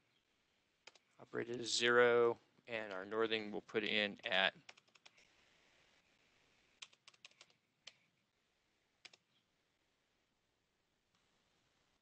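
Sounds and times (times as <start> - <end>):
computer keyboard clicking: 4.7 - 5.2, 6.8 - 8.0.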